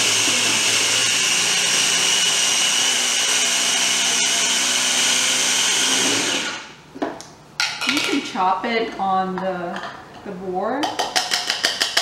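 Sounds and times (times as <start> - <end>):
food processor chopping: 0.0 - 6.7.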